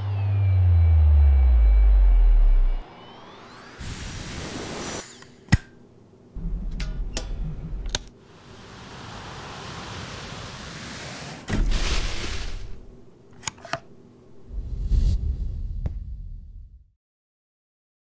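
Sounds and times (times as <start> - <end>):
vacuum cleaner low rumble: 0.0 - 5.0
hiss: 3.8 - 5.1, 8.3 - 12.8.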